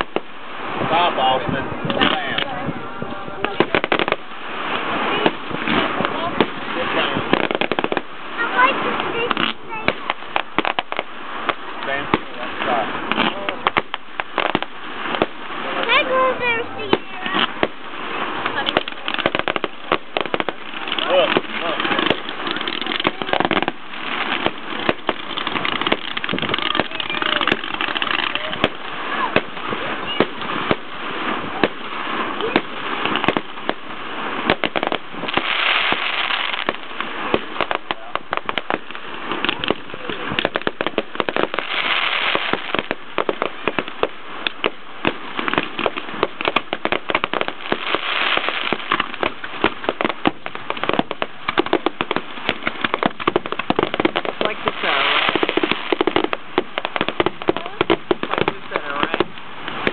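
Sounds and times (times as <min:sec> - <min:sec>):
fireworks crackling: 0:00.0 - 0:59.9
sharp firework bangs: 0:00.0 - 0:59.9.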